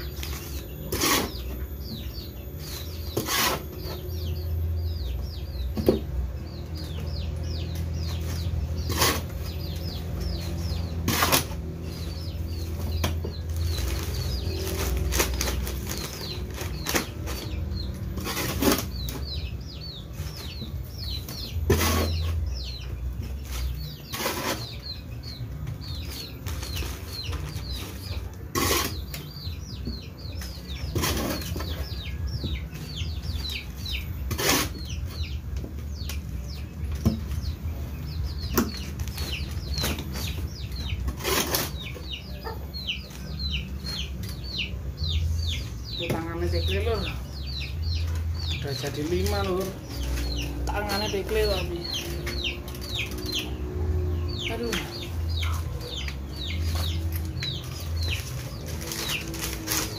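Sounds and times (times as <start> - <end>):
small birds chirping: 0.0 - 59.9
plastic bags rustling: 11.7 - 19.0, 26.0 - 28.1, 56.6 - 59.9.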